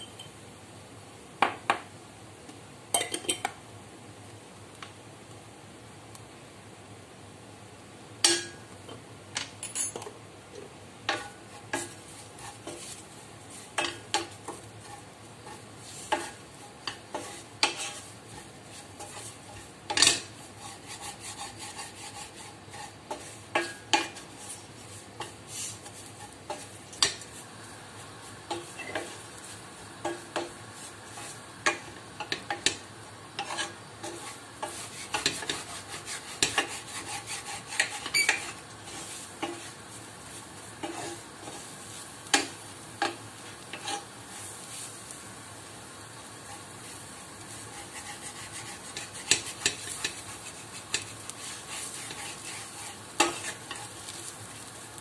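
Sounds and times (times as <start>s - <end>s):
low frying sizzle: 0.0s - 55.0s
wooden spatula scraping a pot: 11.1s - 27.5s, 28.5s - 32.8s, 33.4s - 45.0s, 46.4s - 54.7s.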